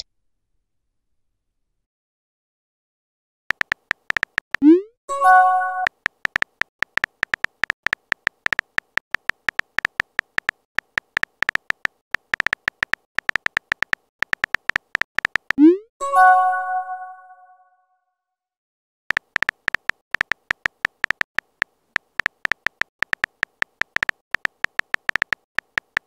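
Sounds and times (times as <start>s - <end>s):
on-screen keyboard clicks: 3.5s - 4.8s, 5.8s - 15.8s, 19.1s - 26.0s.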